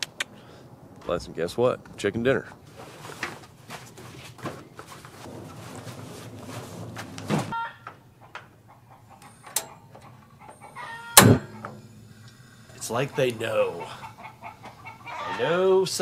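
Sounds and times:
heavy fabric cover rustling: 0:02.7 - 0:07.6.

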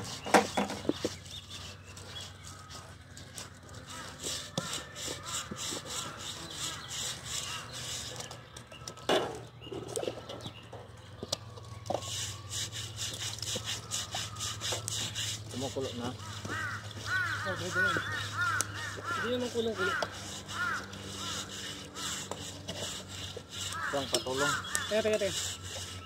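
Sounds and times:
scraping strokes on pig skin: 0:00.0 - 0:09.4, 0:11.3 - 0:26.0.

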